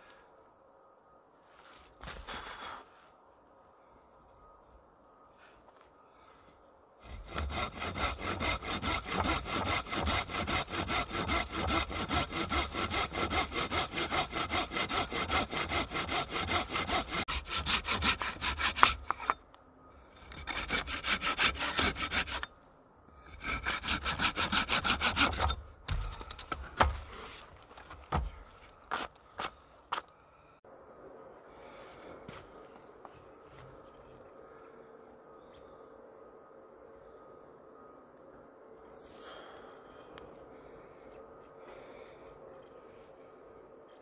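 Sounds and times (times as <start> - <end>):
hand saw cutting wood: 7.0 - 19.4, 20.2 - 22.5, 23.2 - 25.6.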